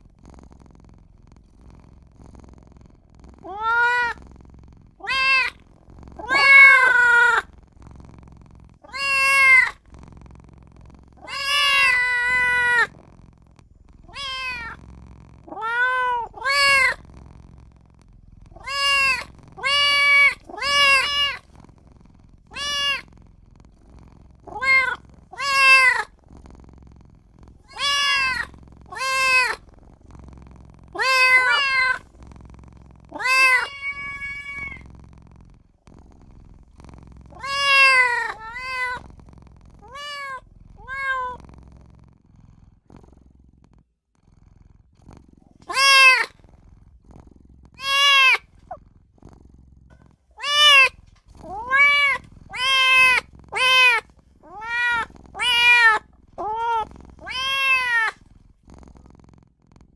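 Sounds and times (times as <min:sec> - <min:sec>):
kitten meowing: 0:03.4 - 0:04.2, 0:05.0 - 0:05.6, 0:06.2 - 0:07.5, 0:08.9 - 0:09.8, 0:11.2 - 0:12.9, 0:14.1 - 0:14.8, 0:15.5 - 0:17.0, 0:18.6 - 0:21.4, 0:22.5 - 0:23.1, 0:24.5 - 0:26.1, 0:27.7 - 0:29.6, 0:30.9 - 0:32.0, 0:33.1 - 0:34.8, 0:37.4 - 0:39.0, 0:39.8 - 0:41.4, 0:45.6 - 0:46.4, 0:47.8 - 0:48.5, 0:50.4 - 0:58.2.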